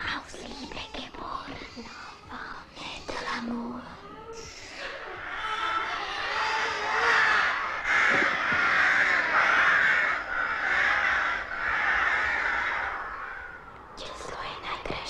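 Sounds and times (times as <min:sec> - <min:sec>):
crows cawing: 0:04.4 - 0:13.9.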